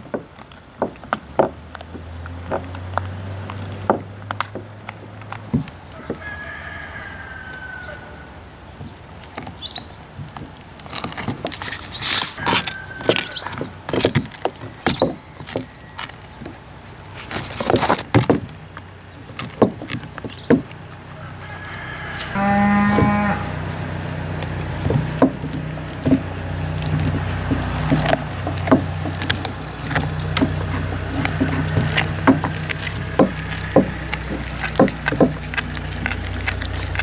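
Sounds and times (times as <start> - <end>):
dog gnawing a bone: 0.0 - 7.8, 8.7 - 37.0
cow mooing: 21.2 - 34.8.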